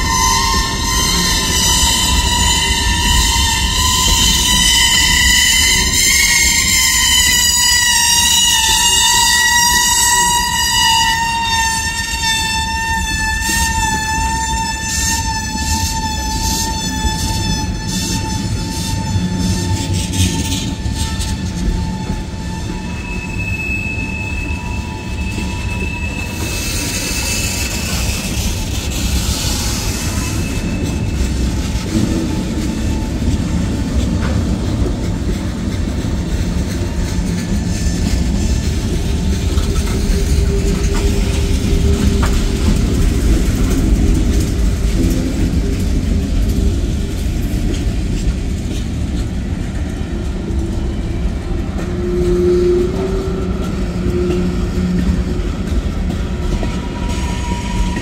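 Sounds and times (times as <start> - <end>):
steel train wheels rumbling on rails: 0.0 - 58.0
faint wheel squeal: 22.4 - 31.9.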